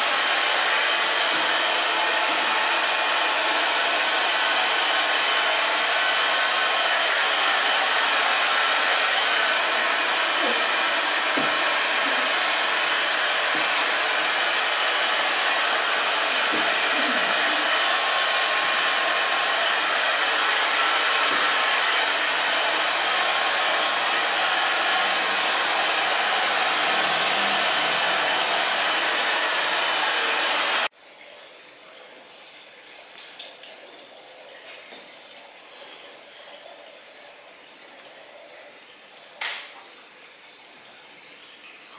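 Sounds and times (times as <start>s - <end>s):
hair dryer blowing: 0.0s - 30.9s.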